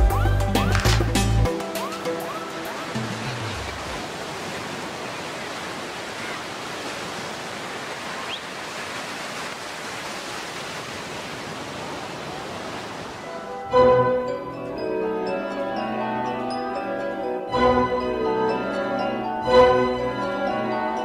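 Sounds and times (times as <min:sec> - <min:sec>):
ocean surf breaking on sand: 0:01.6 - 0:13.7.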